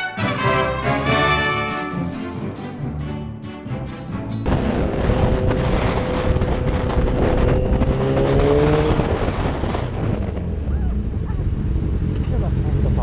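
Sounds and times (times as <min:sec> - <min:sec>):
motorcycle engine drone: 0:04.4 - 0:13.0
wind rush over microphone: 0:04.5 - 0:13.0.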